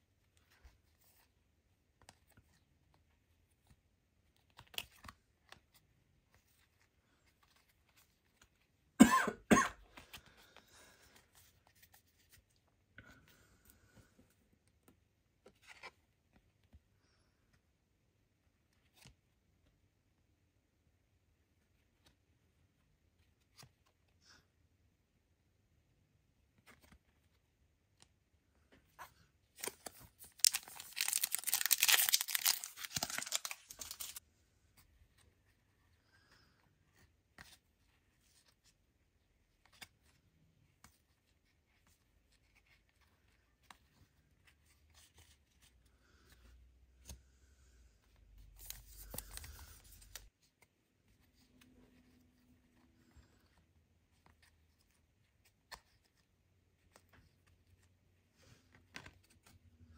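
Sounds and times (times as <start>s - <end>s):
card pack wrapper tearing: 29.6s - 34.2s
cards being flicked through: 29.6s - 34.2s.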